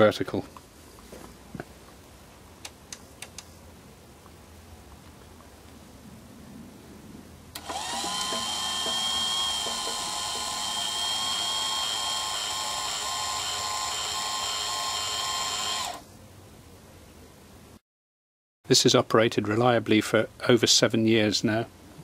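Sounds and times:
small motor whining: 0:07.6 - 0:16.0.

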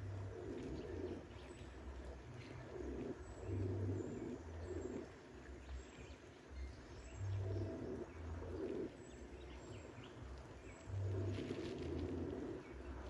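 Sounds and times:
dove cooing: 0:00.0 - 0:05.2, 0:11.0 - 0:13.0
small birds chirping: 0:00.0 - 0:13.0.

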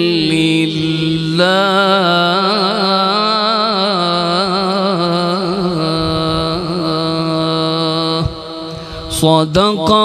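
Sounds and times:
man chanting melodic recitation: 0:00.0 - 0:10.0.

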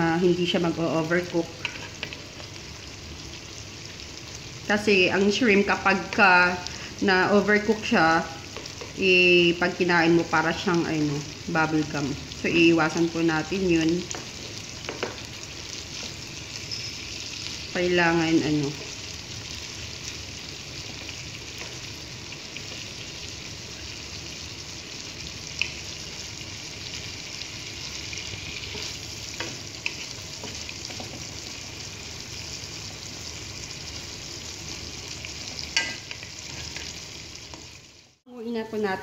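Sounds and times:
shrimp sizzling in butter: 0:00.0 - 0:38.2.

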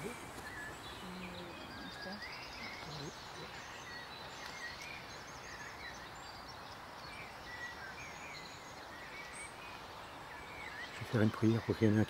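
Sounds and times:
songbirds chirping and whistling: 0:00.0 - 0:12.0
steady background hiss: 0:00.0 - 0:12.0.

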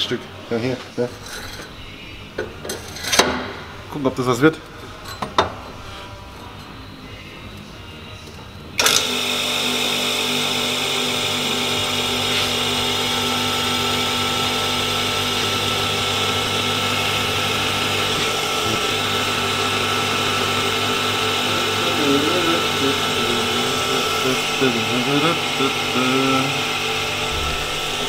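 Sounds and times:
hydraulic press droning with whine: 0:08.8 - 0:28.0.

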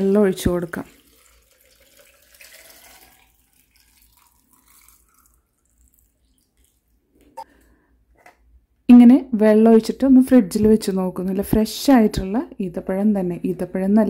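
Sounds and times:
water pouring into a jar: 0:00.0 - 0:07.2.

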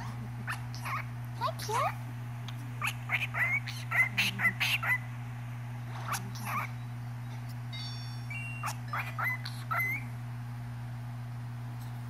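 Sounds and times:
parrot chirping and chattering: 0:00.0 - 0:05.1, 0:05.9 - 0:10.2
steady low hum: 0:00.0 - 0:12.0.

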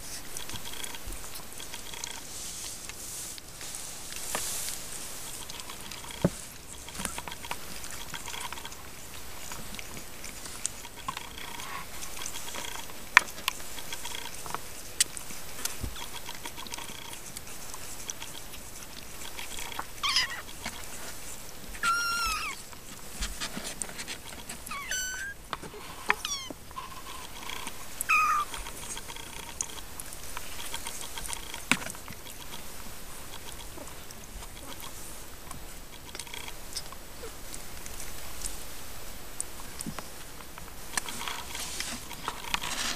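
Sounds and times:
faint rustling: 0:00.0 - 0:42.9
kittens mewing: 0:19.8 - 0:20.7, 0:21.7 - 0:22.7, 0:24.6 - 0:26.7, 0:27.6 - 0:28.7.

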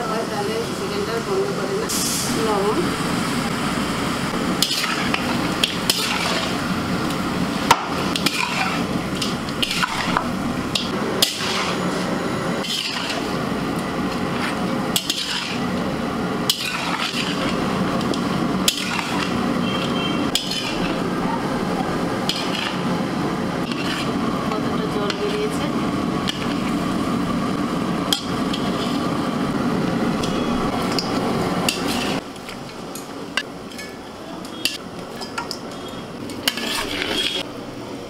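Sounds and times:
metal spatula scraping pan: 0:04.6 - 0:06.6, 0:07.7 - 0:13.4, 0:14.2 - 0:15.7, 0:16.4 - 0:21.1, 0:22.3 - 0:22.9, 0:23.6 - 0:24.2, 0:31.7 - 0:32.2, 0:36.4 - 0:37.5.

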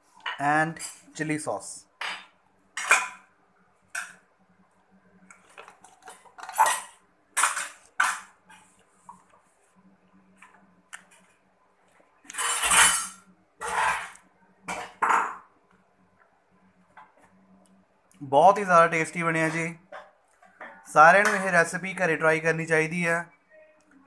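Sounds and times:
cutlery and dishes clinking: 0:02.0 - 0:03.3, 0:05.4 - 0:08.7, 0:12.2 - 0:15.4.

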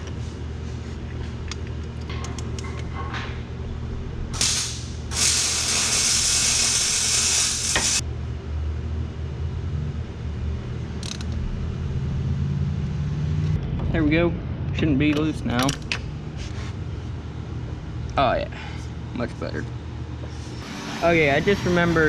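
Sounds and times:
loud hiss-like rasp: 0:04.4 - 0:08.0.

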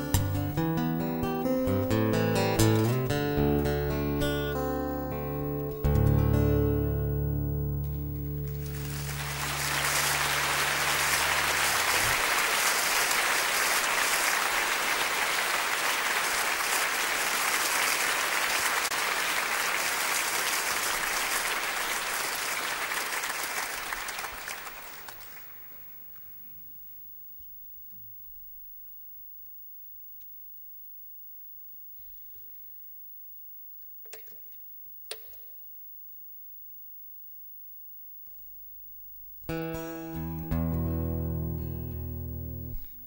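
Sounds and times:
acoustic guitar chord ringing: 0:00.0 - 0:11.8, 0:39.5 - 0:43.0
audience applauding: 0:08.3 - 0:25.9.

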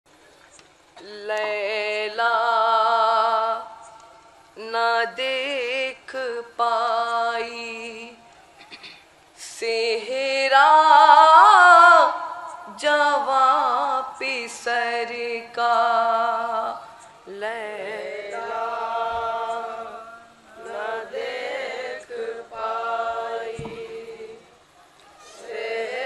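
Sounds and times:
men chanting a lament: 0:17.8 - 0:24.5.

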